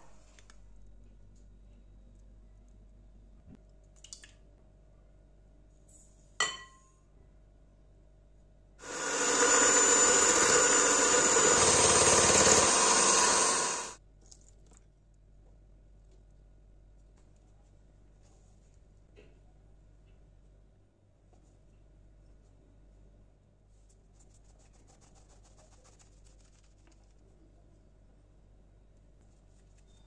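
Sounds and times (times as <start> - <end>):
electric hand mixer whirring: 8.8 - 14.0.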